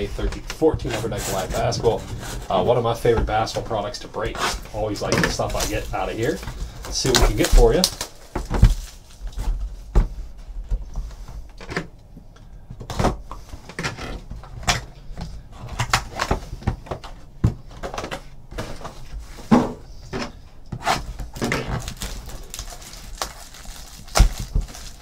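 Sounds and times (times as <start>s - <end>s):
cardboard box and packs handled: 4.7s - 10.2s, 21.0s - 25.0s.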